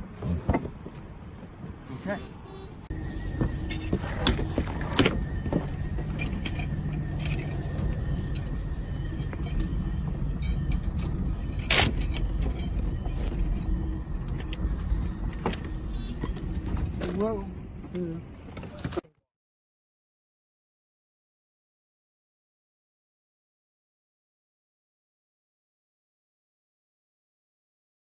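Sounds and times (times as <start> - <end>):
faint whine: 2.2 - 18.4
trolley car rolling on track: 2.9 - 19.0.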